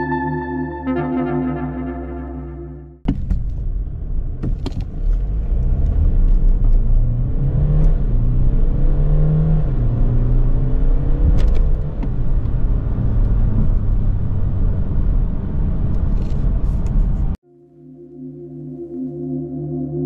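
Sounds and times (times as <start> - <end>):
car engine accelerating: 3.4 - 17.4.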